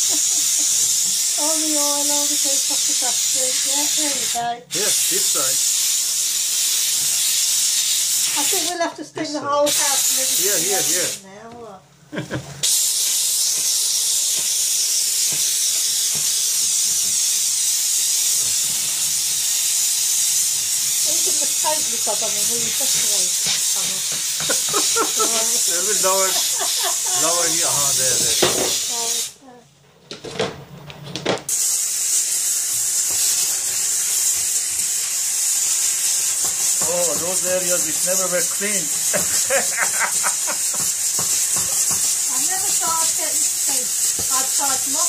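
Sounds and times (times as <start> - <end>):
brush rubbing on tile floor: 0.0 - 8.9, 9.5 - 11.2, 12.6 - 29.3, 31.5 - 45.0
steam nozzle hissing: 0.0 - 8.9, 9.6 - 11.2, 12.6 - 29.4, 31.5 - 45.0
brush knocking against bin: 40.6 - 43.1.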